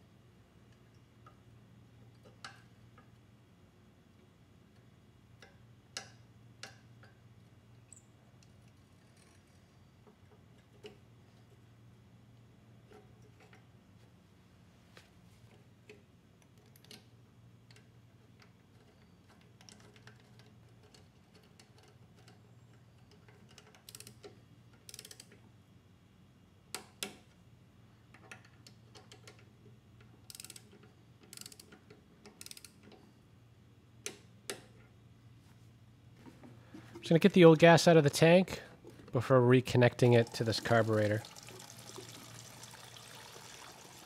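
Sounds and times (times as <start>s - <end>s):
small metal parts clicking: 16.4s - 25.4s, 28.1s - 33.1s
ratchet clicking: 23.2s - 25.4s, 30.2s - 33.0s.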